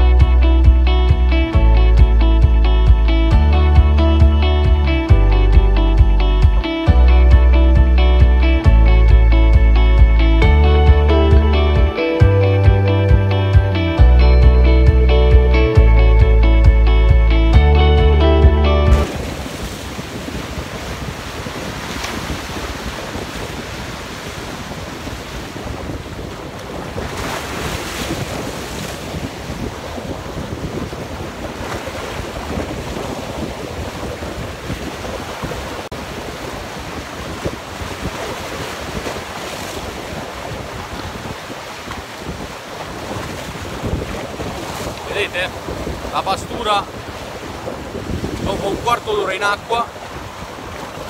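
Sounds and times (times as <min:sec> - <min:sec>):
background music: 0:00.0 - 0:19.2
wind noise on microphone: 0:00.0 - 0:51.0
sea waves breaking on rocks: 0:18.9 - 0:51.0.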